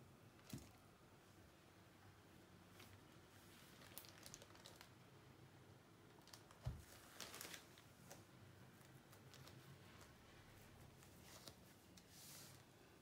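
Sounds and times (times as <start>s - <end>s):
soft crinkles and ticks: 2.8s - 5.0s, 6.1s - 10.2s.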